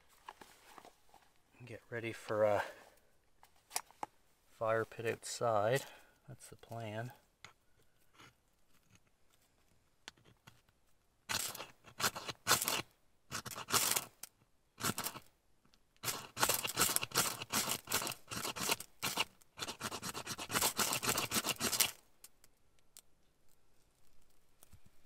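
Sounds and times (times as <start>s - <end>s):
knife scraping dry wood: 7.4s - 9.1s, 11.3s - 15.3s, 16.0s - 22.0s.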